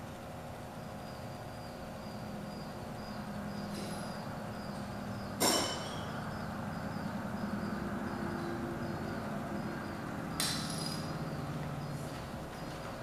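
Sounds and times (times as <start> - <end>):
low steady hum: 0.0 - 13.0
metal tools clanking: 5.4 - 6.1.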